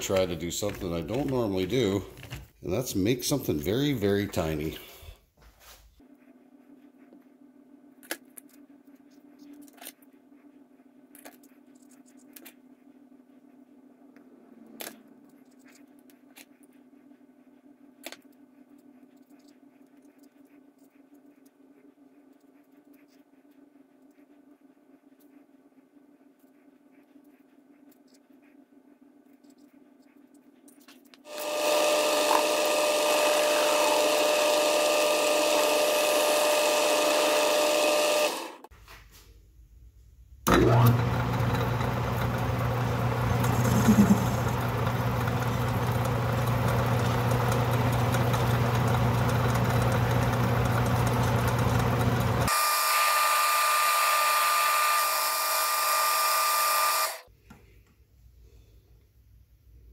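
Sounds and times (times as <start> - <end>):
metal lathe cutting rod: 31.3 - 38.6, 40.5 - 57.2.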